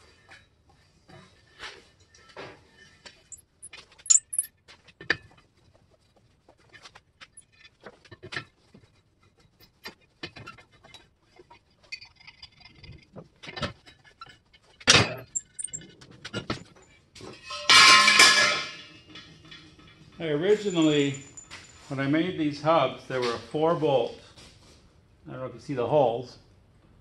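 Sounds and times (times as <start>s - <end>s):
lug wrench clinking on nuts: 3.3s - 4.5s, 15.1s - 15.8s, 20.4s - 21.8s.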